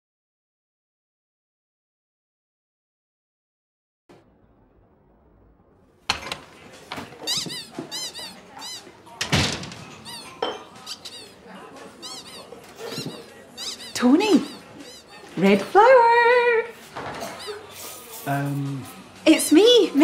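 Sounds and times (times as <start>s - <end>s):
squeaky shoes squeaking: 6.3s - 15.7s, 16.8s - 18.2s.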